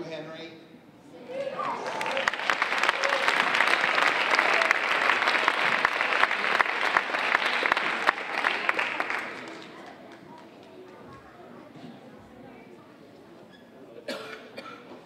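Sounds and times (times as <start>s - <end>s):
audience applauding: 1.4s - 10.9s.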